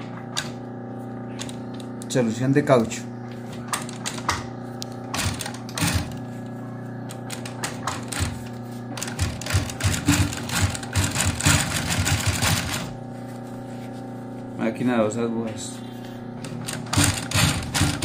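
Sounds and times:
steady machine hum: 0.0 - 18.0
sewing machine stitching: 7.3 - 12.9, 16.6 - 18.0.

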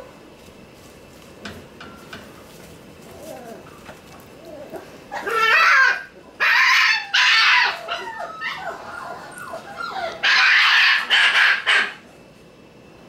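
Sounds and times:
puppies yelping and whining: 3.1 - 12.0.

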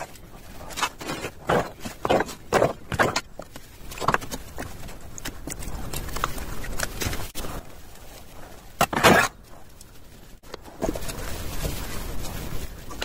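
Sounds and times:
trowel scraping wet cement: 0.0 - 3.4.

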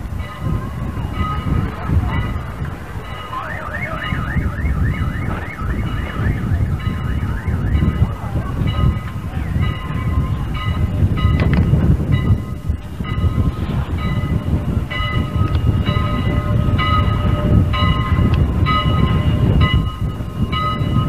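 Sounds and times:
warbling siren tone: 3.3 - 8.7
low rumble: 4.0 - 21.0.

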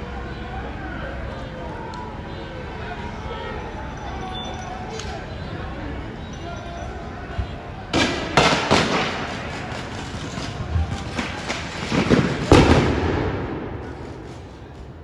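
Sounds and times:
noisy din: 0.0 - 15.0
loud explosive bangs: 7.9 - 14.8.

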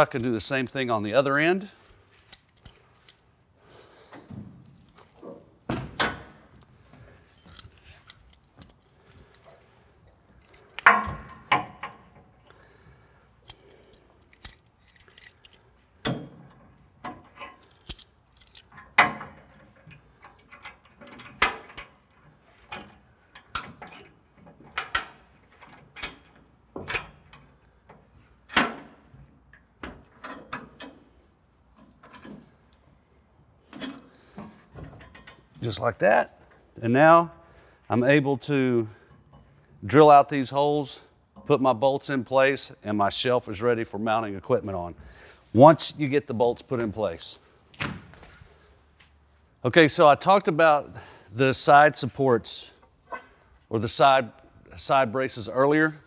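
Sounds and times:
metallic clinks and taps: 0.1 - 3.3, 6.9 - 12.2, 13.4 - 22.0.

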